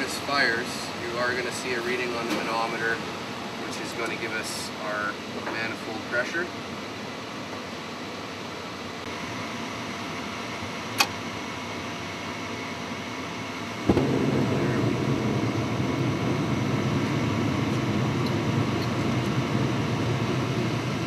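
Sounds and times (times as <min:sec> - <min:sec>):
gas burners rushing: 0:13.7 - 0:21.0.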